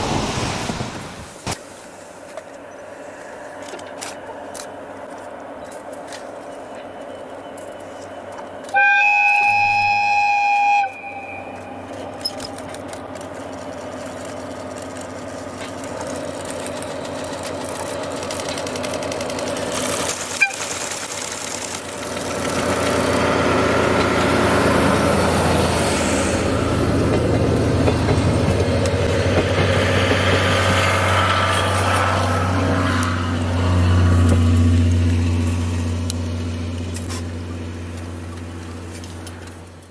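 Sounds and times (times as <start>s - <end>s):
train wheels on rails: 0.0s - 39.9s
locomotive engine running: 2.4s - 39.9s
locomotive horn blast: 8.7s - 12.0s.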